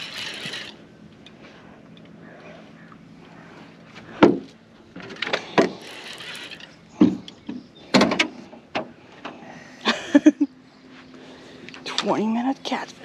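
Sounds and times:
sharp knocks and clunks: 4.2 - 5.8, 7.0 - 9.4.

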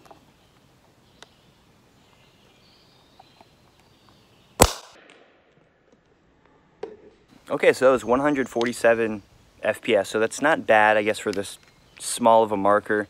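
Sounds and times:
paintball pistol shot: 4.6 - 5.6.

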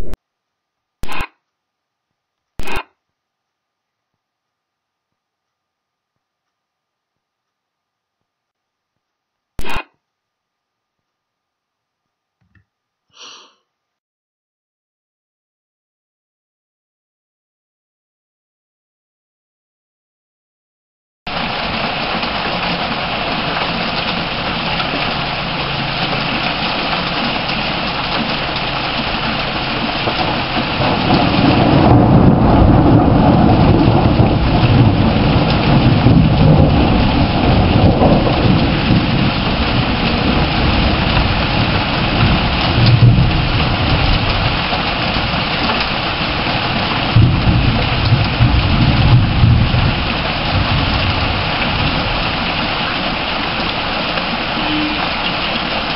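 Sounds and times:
heavy rain: 21.3 - 55.9
thunder rumbling: 21.3 - 55.9.

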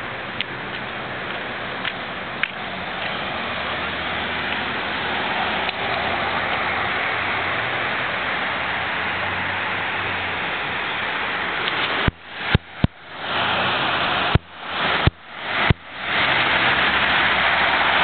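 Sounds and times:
rushing street noise: 0.0 - 18.0.

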